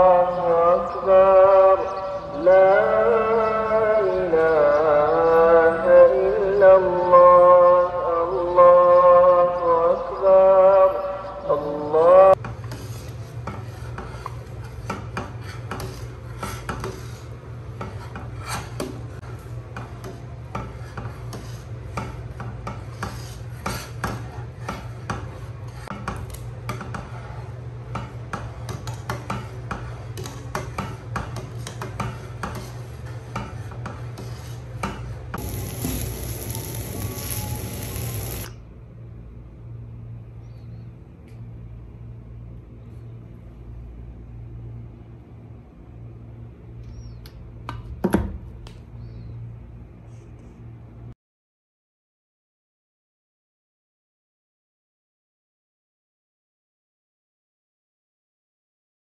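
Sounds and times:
steady low hum: 0:12.4 - 0:46.9
steady hiss: 0:35.4 - 0:38.5.

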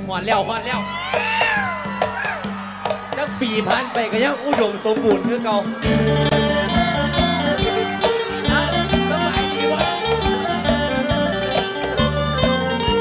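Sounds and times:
bass and drum beat: 0:00.0 - 0:13.0
plucked string melody: 0:00.0 - 0:13.0.

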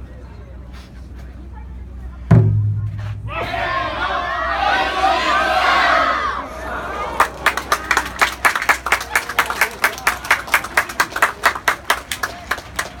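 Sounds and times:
hands clapping in time: 0:07.2 - 0:13.0.

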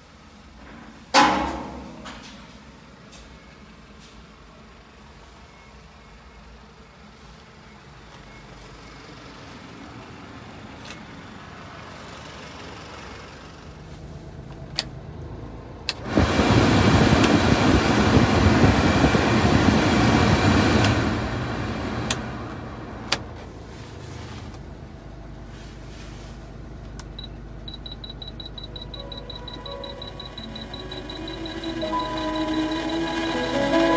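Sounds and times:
heater blower fan rushing air: 0:15.9 - 0:23.2, 0:29.9 - 0:33.9
short electronic beeps: 0:27.2 - 0:33.6.

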